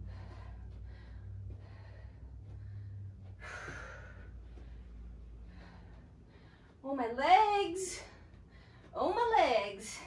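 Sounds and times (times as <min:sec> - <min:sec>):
woman breathing hard: 0:00.0 - 0:06.8, 0:07.9 - 0:09.0
steady low hum: 0:00.0 - 0:10.0.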